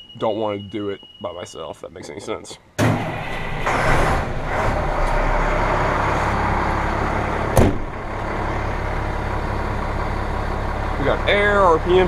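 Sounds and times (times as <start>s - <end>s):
diesel engine low rumble: 3.0s - 12.0s
sharp knock: 7.6s - 7.9s.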